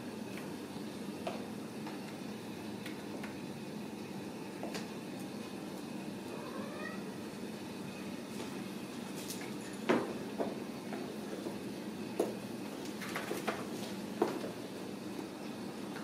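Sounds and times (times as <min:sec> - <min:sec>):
kitten meowing: 0:06.3 - 0:07.1.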